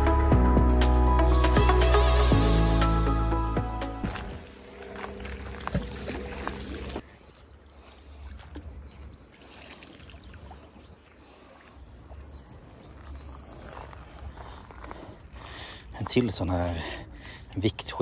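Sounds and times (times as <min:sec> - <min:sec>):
background music: 0:00.0 - 0:04.6
faint water splashing: 0:04.0 - 0:17.7.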